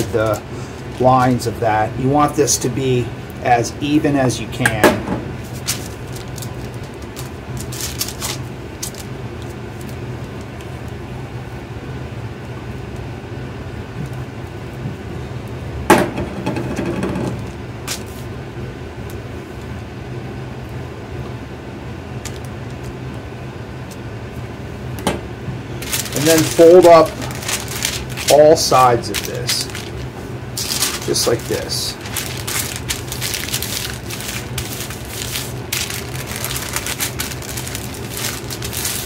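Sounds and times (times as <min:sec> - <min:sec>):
steady low hum: 0:00.0 - 0:39.0
paper rustle: 0:05.4 - 0:10.0, 0:25.8 - 0:39.0.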